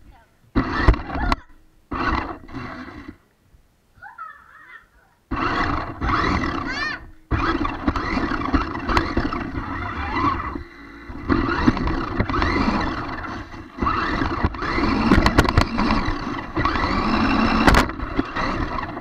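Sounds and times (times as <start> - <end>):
electric motor whining: 0.5 - 3.2, 5.3 - 19.0
toy car knocking into things: 14.4 - 16.1, 17.4 - 18.3.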